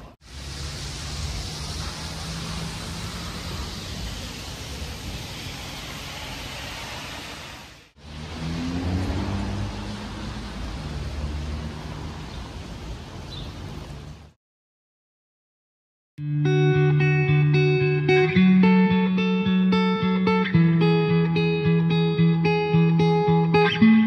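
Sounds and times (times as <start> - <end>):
vehicle rushing noise and hum: 0.2 - 5.7, 7.8 - 14.4.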